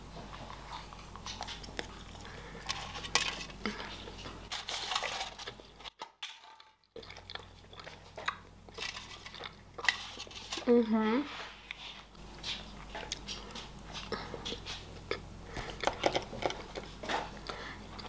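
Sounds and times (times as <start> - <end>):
chewing chocolate: 0.7 - 4.4, 6.9 - 10.7, 11.6 - 18.0
foil crinkling: 2.3 - 6.0.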